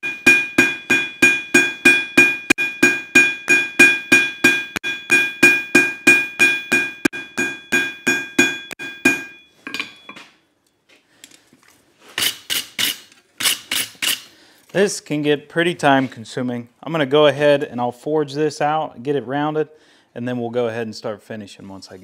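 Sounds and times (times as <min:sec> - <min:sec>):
hammer striking steel on anvil: 0:00.0 - 0:10.3
sharp metal clanks: 0:00.0 - 0:10.3.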